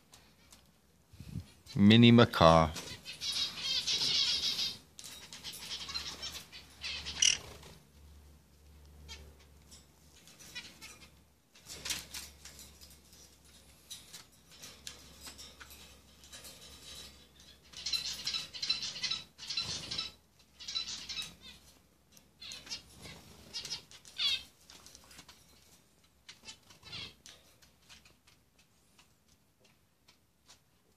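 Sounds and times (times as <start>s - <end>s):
parrots chattering: 2.9s - 7.7s, 17.3s - 21.7s, 22.4s - 25.3s, 26.4s - 27.3s.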